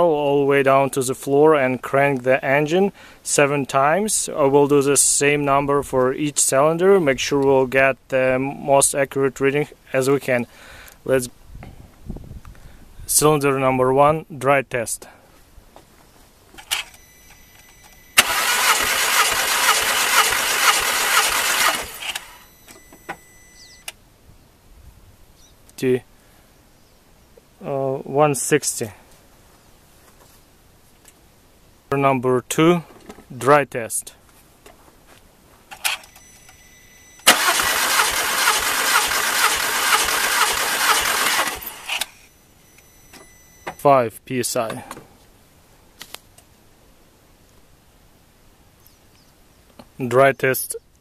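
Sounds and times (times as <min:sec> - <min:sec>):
starter motor cranking engine: 0:16.6 - 0:23.1, 0:37.2 - 0:42.3.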